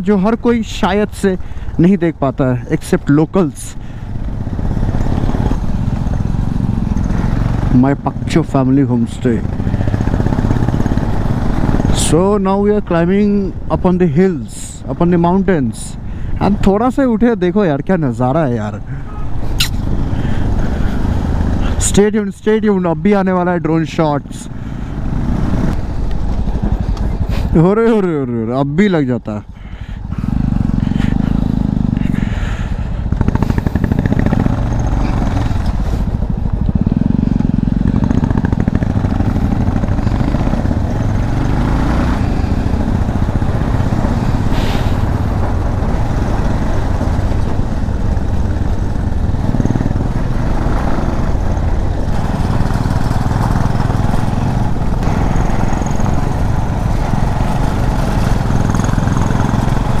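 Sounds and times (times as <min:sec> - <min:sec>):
motorcycle engine rumbling: 0:00.0 - 1:00.0.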